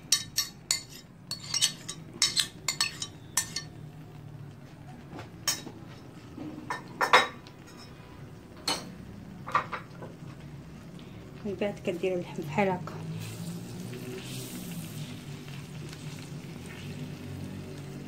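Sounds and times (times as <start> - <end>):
metal spoon clinking on plate: 0.0 - 3.8.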